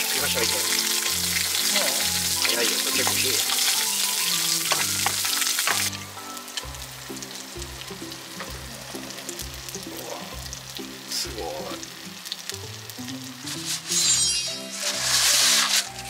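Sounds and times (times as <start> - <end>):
bread sizzling in sandwich press: 11.1 - 16.0.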